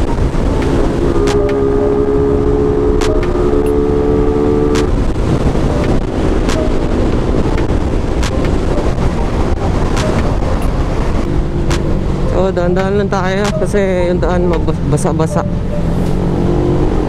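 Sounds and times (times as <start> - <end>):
motorcycle engine: 0.0 - 14.1
wind noise on microphone: 0.0 - 17.0
sharp clicks: 3.0 - 3.8, 4.7 - 5.0, 5.7 - 8.9, 9.9 - 10.8.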